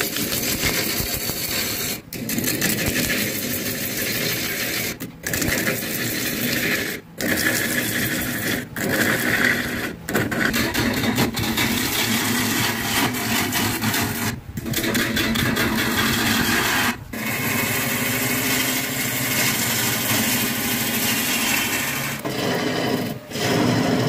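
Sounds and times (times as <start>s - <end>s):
wood lathe gouge cutting: 7.2s - 24.0s.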